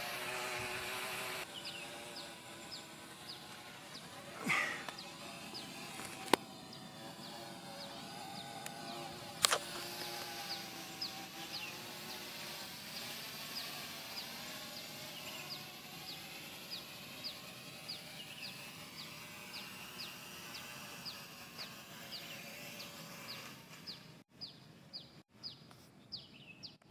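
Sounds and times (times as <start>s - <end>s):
drone motors humming: 0.0s - 25.0s
bird chirping: 1.5s - 9.2s, 10.0s - 12.4s, 13.0s - 26.9s
sharp click: 9.4s - 10.2s.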